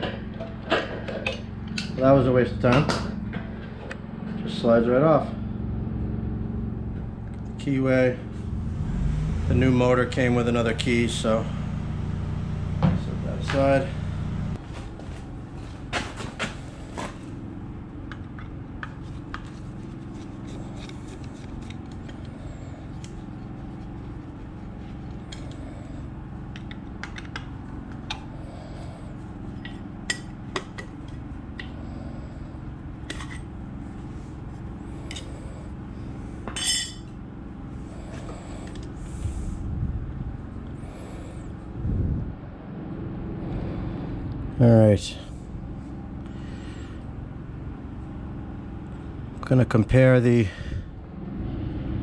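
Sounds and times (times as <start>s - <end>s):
steady low hum: 0.0s - 52.0s
metal tools clinking: 36.6s - 37.1s.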